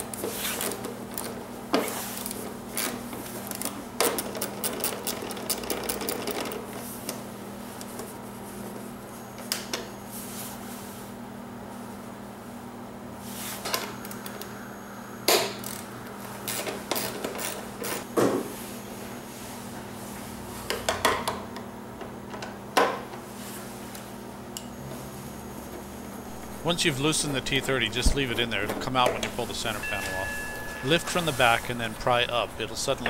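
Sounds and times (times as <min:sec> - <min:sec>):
low hum: 0:13.8 - 0:17.0, 0:26.2 - 0:33.0.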